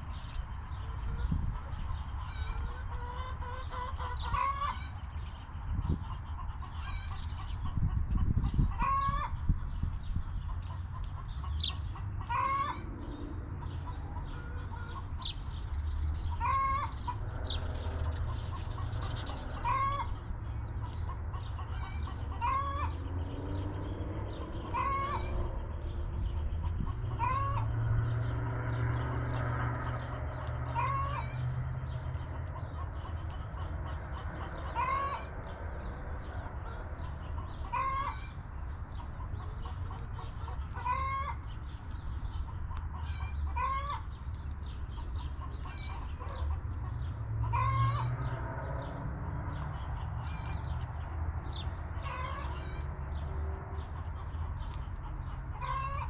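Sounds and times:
hens clucking: 0.2 - 15.4, 16.2 - 56.0
steady low rumble: 7.6 - 52.1.

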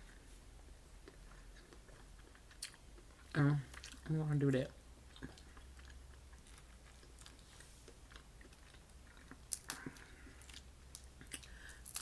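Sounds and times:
faint chewing with mouth clicks: 0.0 - 12.0
crawfish shell cracking: 10.9 - 12.0.

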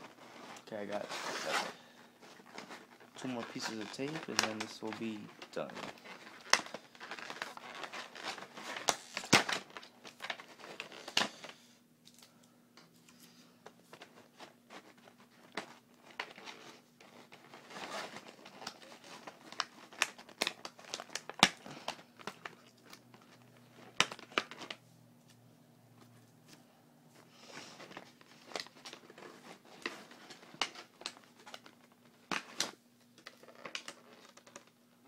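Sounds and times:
plastic crinkling: 0.0 - 12.3, 13.8 - 24.8, 27.2 - 34.8.

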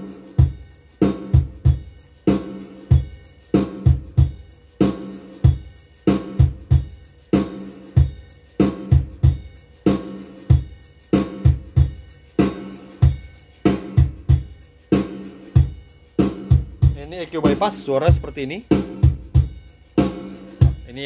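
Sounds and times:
music track with kick and snare beat: 0.0 - 21.0.

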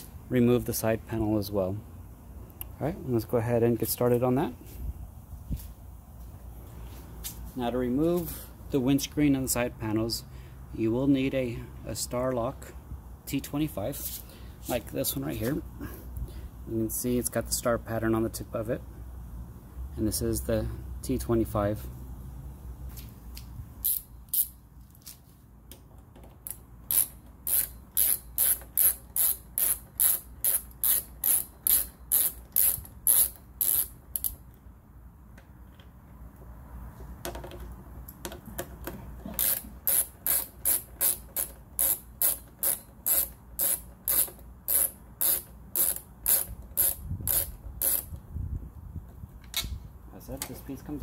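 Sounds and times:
ratcheting driver clicking: 25.7 - 34.6, 37.2 - 48.2.

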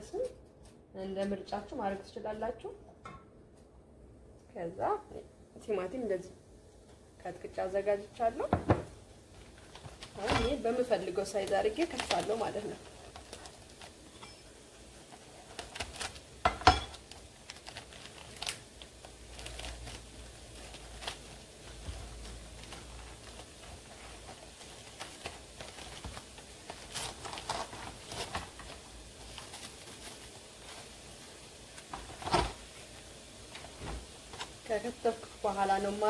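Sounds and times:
plastic cling film crinkling: 9.1 - 36.0.

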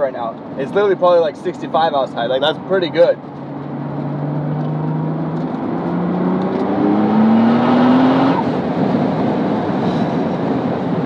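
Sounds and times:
road noise: 0.0 - 11.0
car engine accelerating: 2.3 - 11.0.

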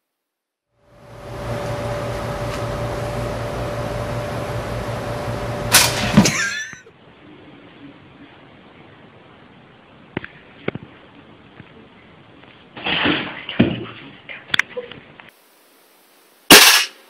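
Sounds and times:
steady electrical hum: 0.8 - 17.0
toaster ejecting with metallic clack: 5.7 - 6.5, 16.5 - 17.0.

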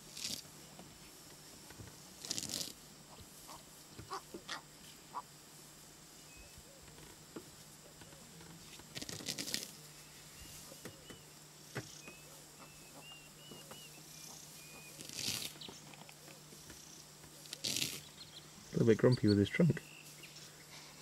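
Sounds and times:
rustling and snapping grass: 0.0 - 5.0, 6.9 - 12.7, 13.6 - 18.2.

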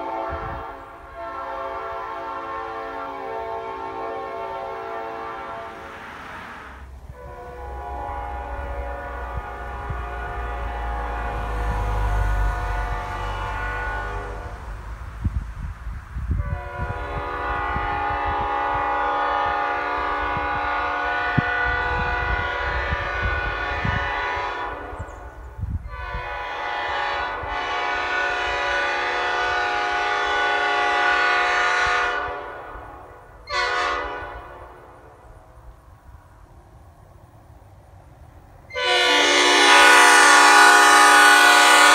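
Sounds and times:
train horn blasts: 0.0 - 6.0, 7.1 - 15.0, 16.3 - 35.4, 38.7 - 41.9
passing car rumble: 5.0 - 18.5.

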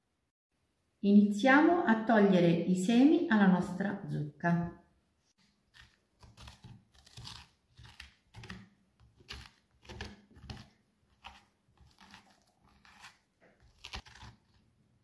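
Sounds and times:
spoon scraping pumpkin: 5.4 - 15.0.

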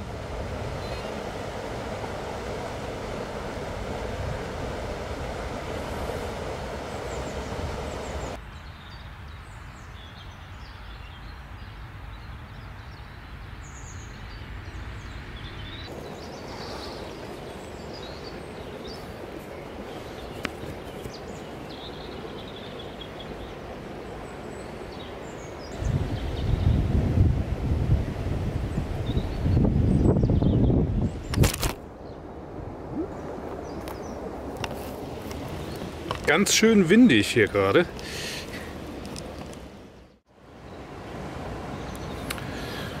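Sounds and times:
river water rushing: 0.0 - 8.4, 31.8 - 43.0
wind buffeting microphone: 0.0 - 8.4, 15.0 - 36.6
birds chirping: 0.7 - 1.5, 5.5 - 26.9, 28.7 - 43.0.

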